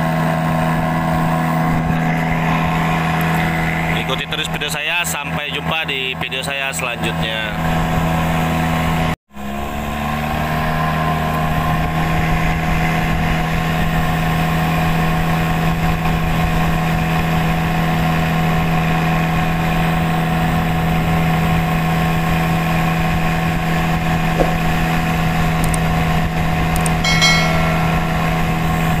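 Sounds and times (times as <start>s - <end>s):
small boat engine humming: 16.6s - 29.0s.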